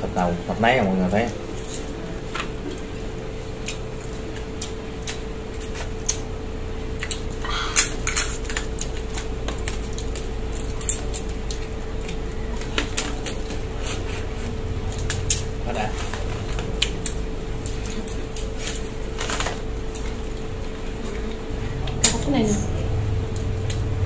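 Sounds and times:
steady low hum: 0.0s - 24.0s
crab shells cracking: 3.6s - 13.8s, 14.9s - 22.1s.

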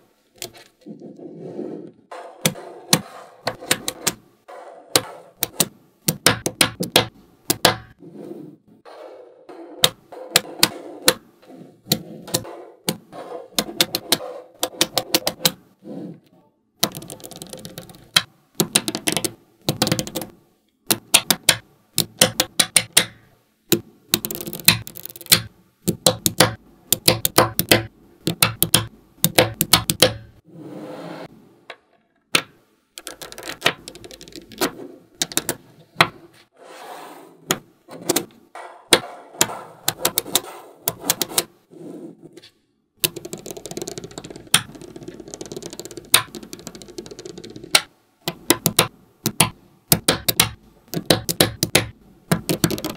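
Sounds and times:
magnetic balls clicking together: 4.9s - 8.0s, 11.9s - 15.6s, 16.8s - 20.3s, 20.9s - 30.4s, 32.3s - 35.6s, 43.0s - 52.9s.

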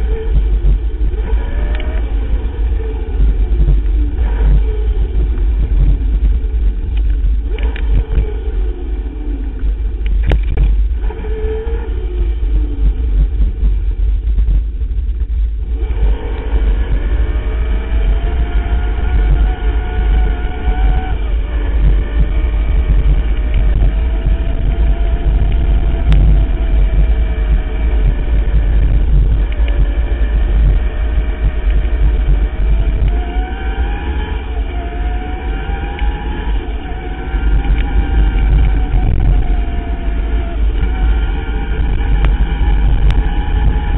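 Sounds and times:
electric motor whine: 0.0s - 14.6s, 15.6s - 43.9s
bike rolling on dirt trail: 0.0s - 43.9s
wind rumble: 0.0s - 43.9s
bike rattles: 9.5s - 43.9s.

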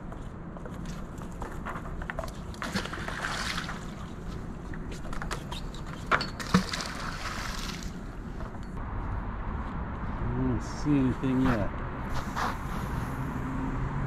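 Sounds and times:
magnet splashing into river: 2.6s - 4.1s, 6.4s - 8.0s.

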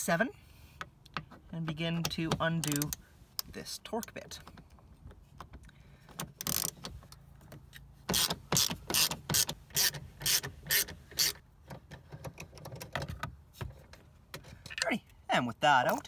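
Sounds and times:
hand ratchet clicking: 6.4s - 6.9s, 8.1s - 11.4s.

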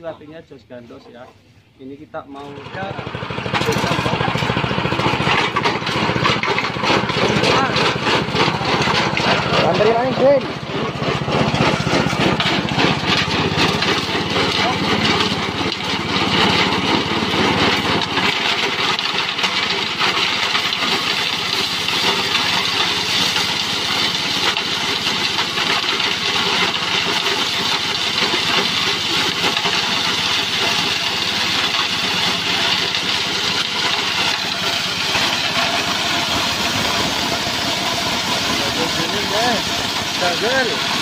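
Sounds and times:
small petrol engine running: 2.2s - 41.0s
cutter shredding material: 2.3s - 41.0s.

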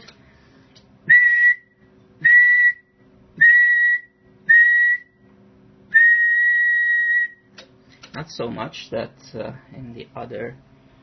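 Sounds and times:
faint steady hum: 0.0s - 11.0s
high-pitched test whistles: 1.1s - 5.3s, 5.9s - 7.5s.

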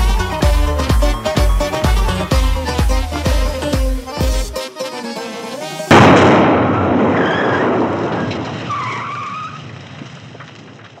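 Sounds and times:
explosion blast and rumble: 5.9s - 11.0s.

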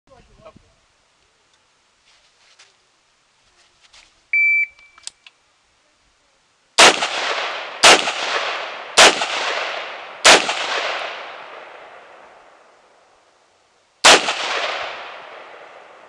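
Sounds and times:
shot timer beep: 4.4s - 5.0s
rifle shots echoing: 6.8s - 12.5s, 14.0s - 16.0s.

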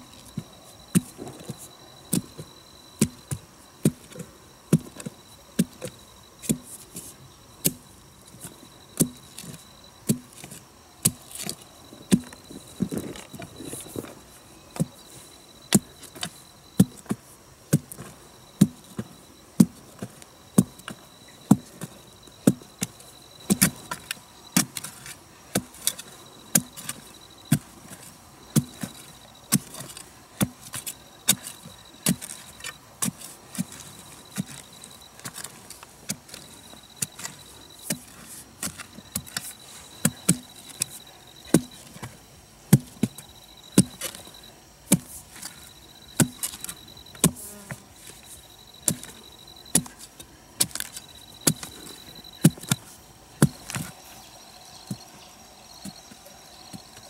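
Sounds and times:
insects trilling: 0.0s - 57.0s
hand tool striking: 15.7s - 42.1s, 42.7s - 54.0s.

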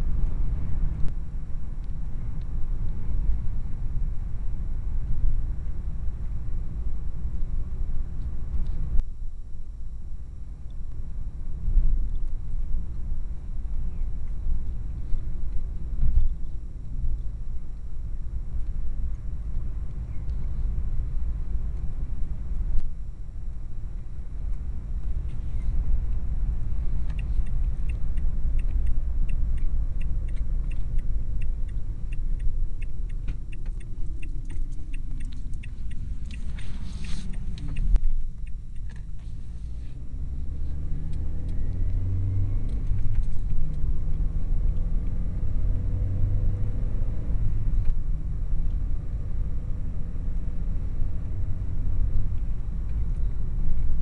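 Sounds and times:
car engine: 0.0s - 54.0s
road rumble: 0.0s - 54.0s
light ticking: 24.4s - 39.5s.

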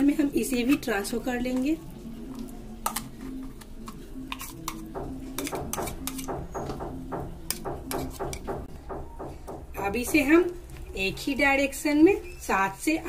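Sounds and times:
spoon scraping and clinking in jar: 2.9s - 4.8s, 5.4s - 6.3s.

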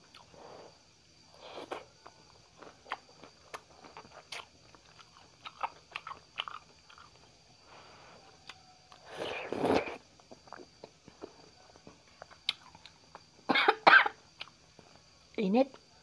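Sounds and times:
person chewing noodles: 0.1s - 0.4s, 1.4s - 7.3s, 8.4s - 11.4s, 12.2s - 13.3s.

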